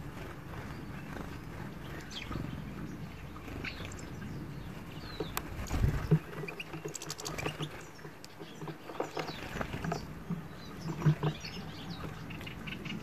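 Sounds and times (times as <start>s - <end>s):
birds husking seeds: 0.0s - 13.0s
wings fluttering: 0.0s - 13.0s
bird chirps: 0.5s - 13.0s.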